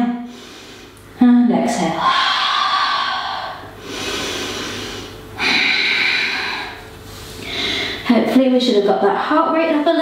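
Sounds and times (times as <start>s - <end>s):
woman breathing deeply: 0.2s - 1.0s, 2.0s - 8.1s.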